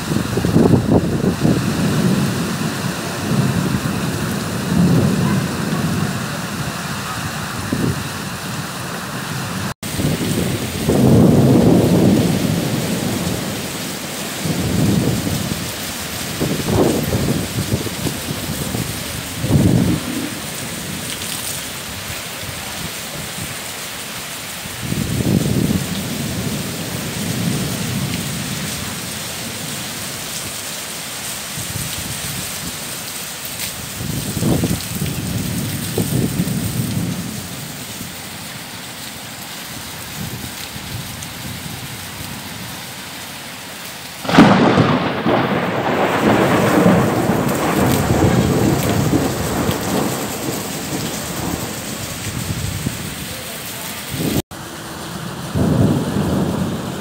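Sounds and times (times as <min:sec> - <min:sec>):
thunder rumbling: 0:00.0 - 0:23.4, 0:24.8 - 0:29.9, 0:33.8 - 0:38.1, 0:44.2 - 0:54.5, 0:55.3 - 0:57.0
heavy rain pouring: 0:00.0 - 0:57.0
loud thunderclap: 0:00.1 - 0:08.1, 0:09.8 - 0:13.8, 0:14.4 - 0:21.2, 0:44.2 - 0:53.2, 0:55.5 - 0:57.0.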